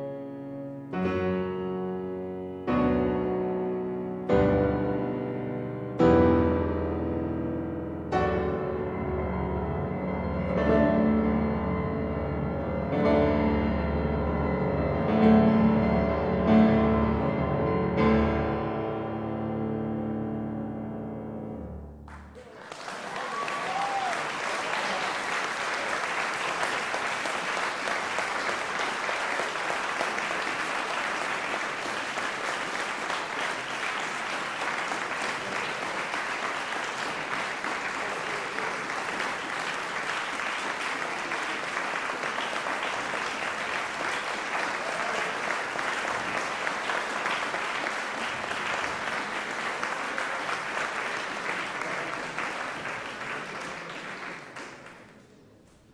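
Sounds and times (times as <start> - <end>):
audience applauding: 22.0 - 55.9.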